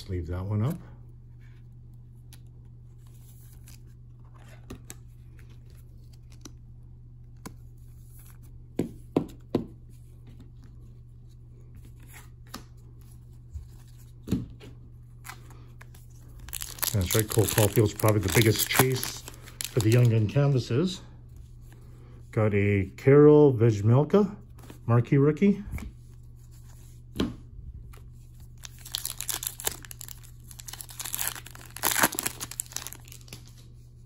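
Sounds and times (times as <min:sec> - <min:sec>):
foil pack crinkling: 0:16.3 - 0:20.4, 0:28.6 - 0:33.6.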